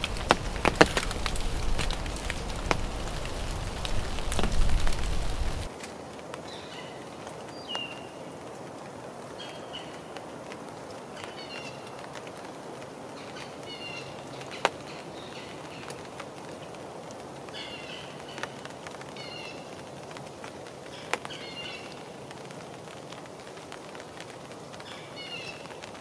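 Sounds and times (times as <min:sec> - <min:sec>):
small birds chirping: 0:00.0 - 0:05.7, 0:06.4 - 0:08.4, 0:13.1 - 0:16.8, 0:17.4 - 0:19.8, 0:20.7 - 0:22.4, 0:24.7 - 0:26.0
light rain hissing: 0:00.0 - 0:26.0.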